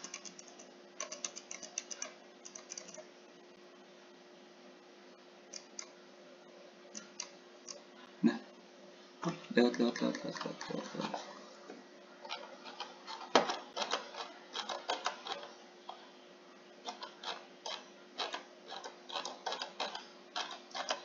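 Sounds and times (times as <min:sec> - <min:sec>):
mouse and keyboard clicks: 0:00.0 - 0:03.1, 0:05.5 - 0:06.0, 0:12.3 - 0:15.5, 0:16.9 - 0:21.0
faint steady hum: 0:00.0 - 0:21.0.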